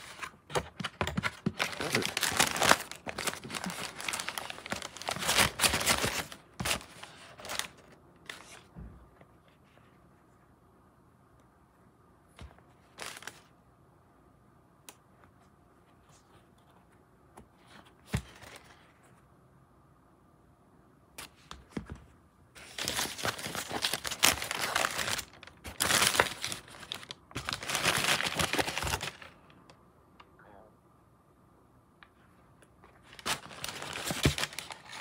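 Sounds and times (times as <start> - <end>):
tissue paper crinkling: 1.4 - 8.6, 22.6 - 29.4, 33.0 - 35.0.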